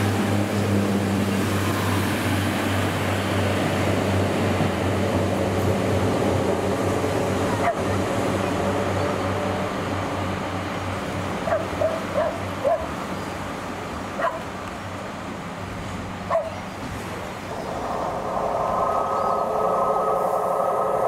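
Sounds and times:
rumbling noise: 17.0s - 21.0s
steady low hum: 17.4s - 21.0s.

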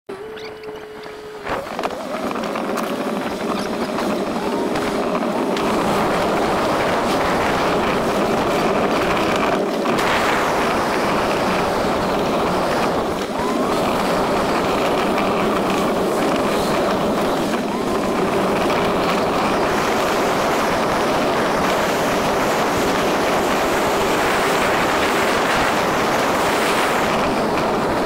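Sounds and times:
vehicle rushing noise: 1.4s - 28.0s.

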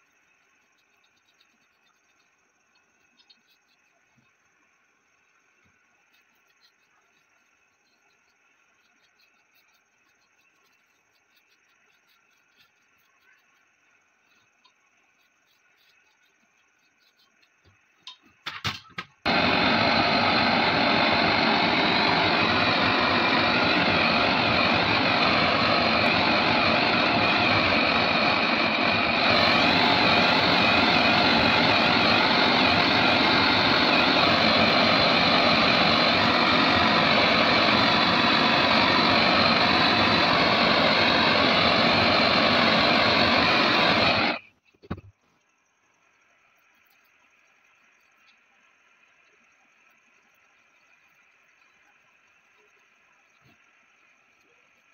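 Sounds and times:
blowtorch flame hissing: 19.2s - 44.4s.

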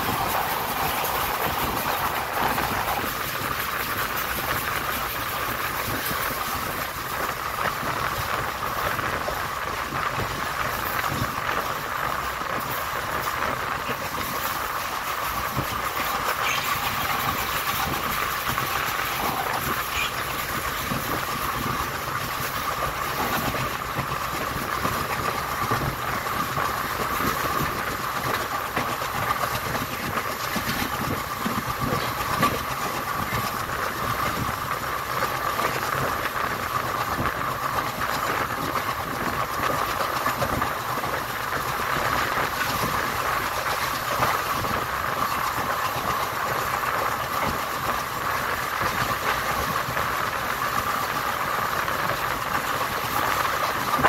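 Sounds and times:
clickety-clack of rail joints: 0.0s - 54.0s
train wheels rumbling on rail: 0.0s - 54.0s.

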